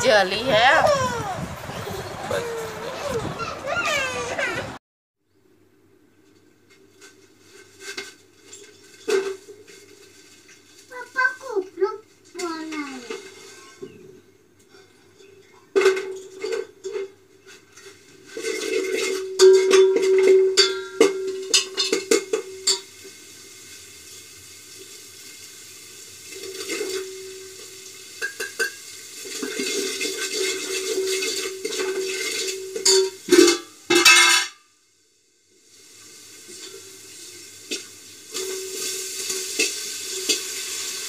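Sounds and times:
pot clanking on a burner: 17.8s - 22.9s, 26.4s - 34.6s, 37.7s - 40.8s
spices sizzling in oil: 21.0s - 33.5s, 35.2s - 41.0s.

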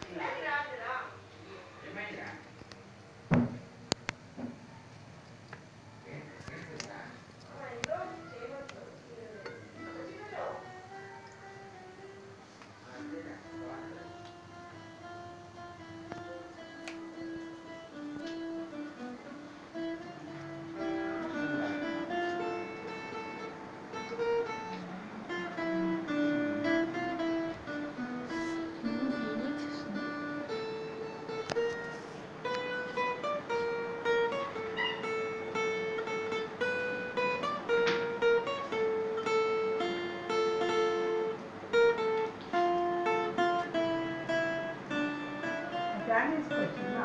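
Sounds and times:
acoustic guitar melody: 6.4s - 47.0s.

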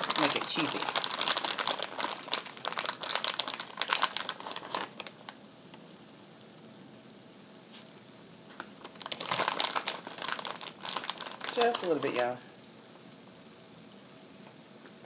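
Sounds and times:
plastic bag crinkling: 0.0s - 5.4s, 8.5s - 12.4s
faint steady hiss: 0.0s - 15.0s.

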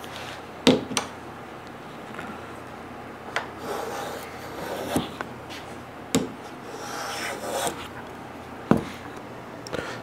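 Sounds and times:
wood scraping against wood: 3.6s - 5.6s, 6.7s - 7.9s.

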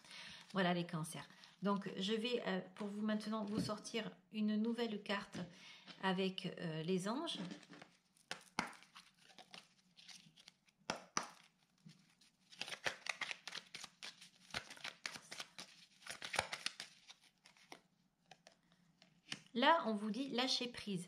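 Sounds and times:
cards being shuffled: 7.4s - 19.6s.

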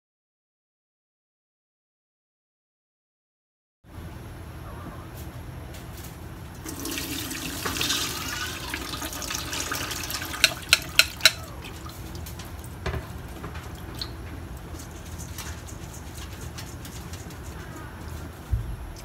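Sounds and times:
water pouring through colander: 6.6s - 16.0s.

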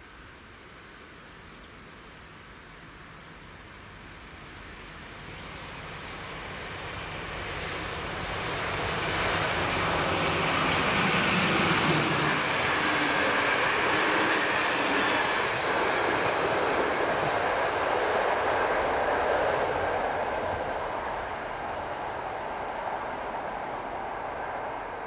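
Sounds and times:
train wheels on rails: 5.2s - 25.0s.

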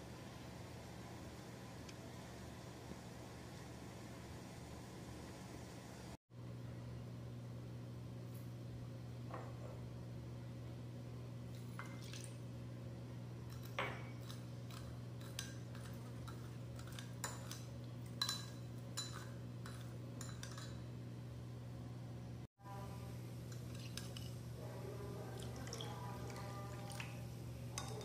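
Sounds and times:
spoon clinking against bowl: 13.5s - 20.8s.

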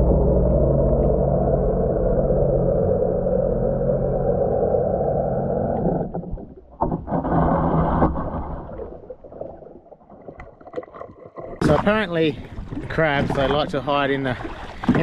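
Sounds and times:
muffled underwater engine drone: 0.0s - 7.3s.

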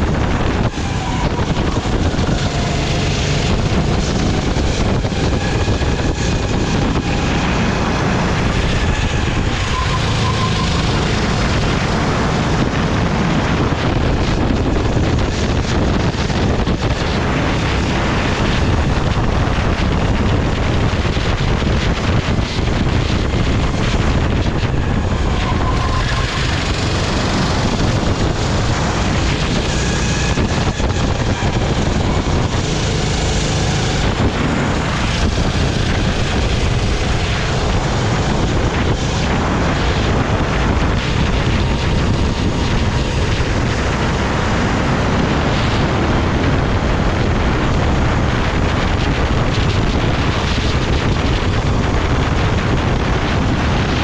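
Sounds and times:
go-kart engine running: 0.0s - 54.0s
wind buffeting microphone: 0.0s - 54.0s.

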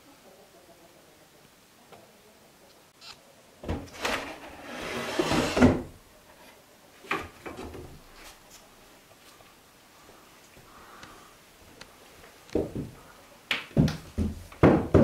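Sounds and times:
wooden drawer scraping: 3.7s - 6.0s.

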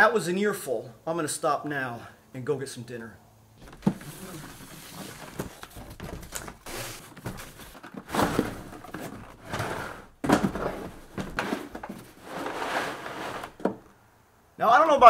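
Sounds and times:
case sliding out of cardboard box: 3.6s - 13.7s.

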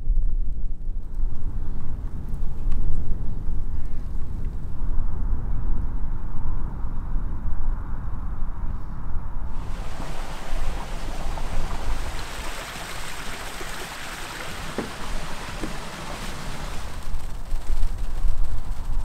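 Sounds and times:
wind buffeting microphone: 9.5s - 19.0s
wind rushing: 9.5s - 19.0s.

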